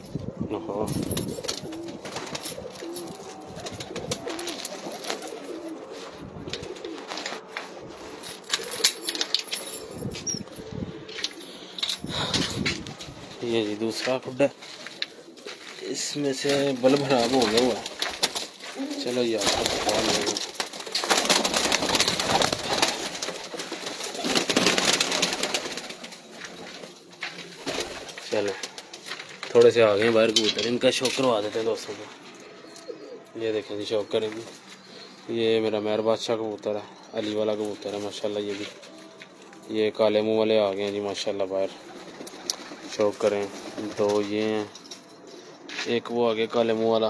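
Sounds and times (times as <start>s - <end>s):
pigeons cooing: 0.0s - 47.0s
pigeon wings flapping: 1.0s - 10.4s, 14.9s - 29.8s
sharp clicks and rustles: 6.4s - 13.2s.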